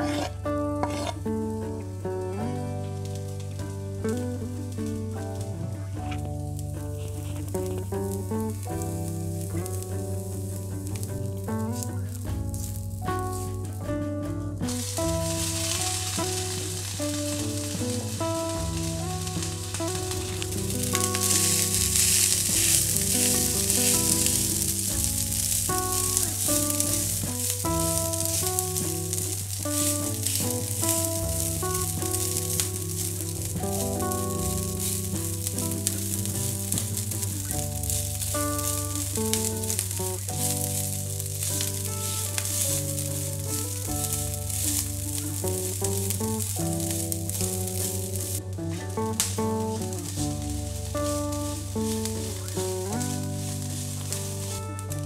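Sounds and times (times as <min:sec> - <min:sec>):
soft background music: 0:00.0 - 0:55.0
food sizzling in a pan: 0:14.7 - 0:55.0.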